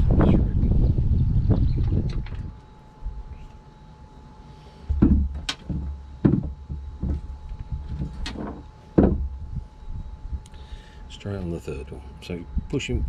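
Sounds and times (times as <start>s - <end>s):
low rumbling: 0.0s - 3.6s, 4.8s - 11.1s.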